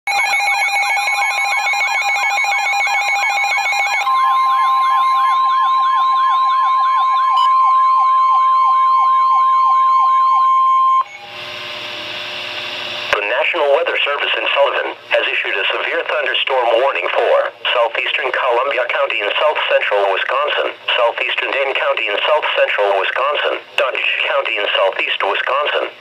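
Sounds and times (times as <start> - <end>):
steady warning tone: 0.1 - 14.8
siren-like rising whoops: 4.0 - 11.4
radio hiss: 12.5 - 26.0.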